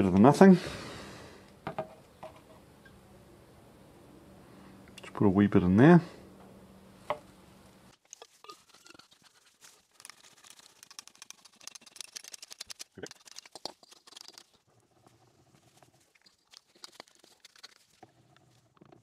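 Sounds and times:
scratchy rubbing: 8.2s - 18.8s.

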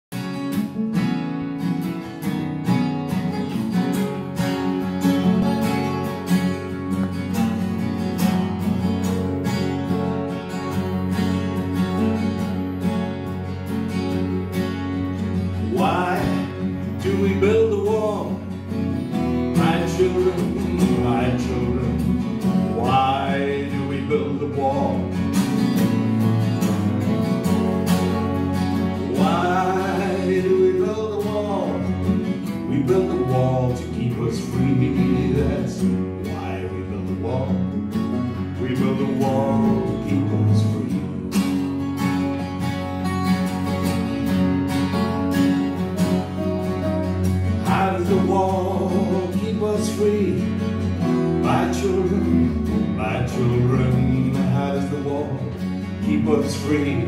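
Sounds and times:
acoustic guitars strumming: 0.1s - 57.0s
double bass plucking: 2.8s - 57.0s
person singing: 15.6s - 18.5s, 19.5s - 25.2s, 28.9s - 37.8s, 38.4s - 41.3s, 47.4s - 57.0s.

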